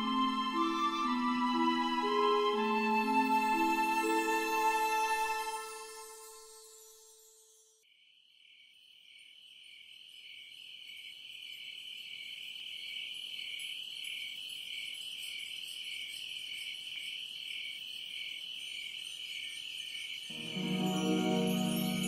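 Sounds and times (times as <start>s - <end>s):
high chirring trill: 20.3s - 22.0s.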